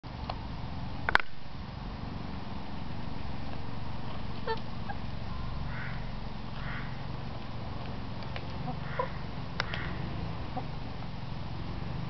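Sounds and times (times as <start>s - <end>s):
steady low rumble: 0.1s - 12.0s
hens clucking: 4.4s - 7.1s, 8.3s - 10.8s.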